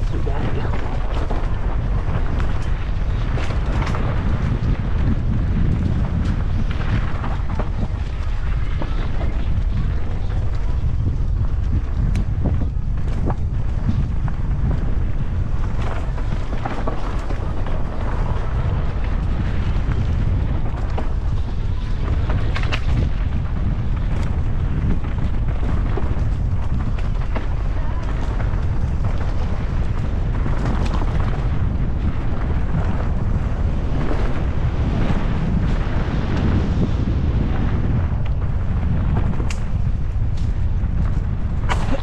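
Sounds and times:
bike clattering over rough ground: 0.0s - 42.0s
bike tyre noise: 0.0s - 42.0s
wind rumbling on microphone: 0.0s - 42.0s.

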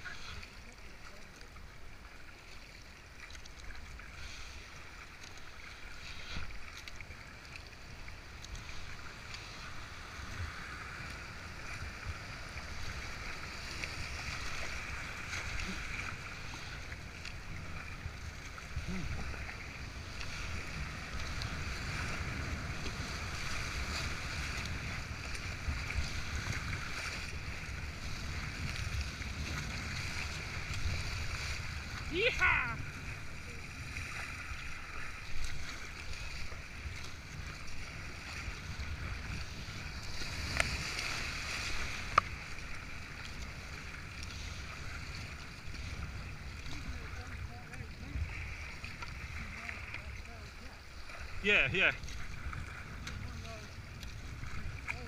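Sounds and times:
rushing white water: 0.0s - 55.0s.

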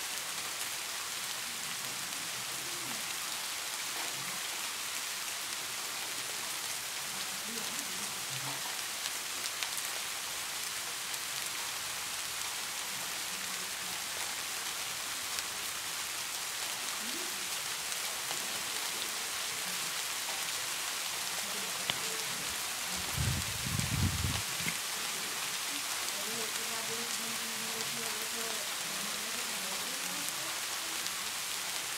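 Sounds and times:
rain hissing: 0.0s - 31.9s
low muffled rumble: 23.0s - 24.8s.

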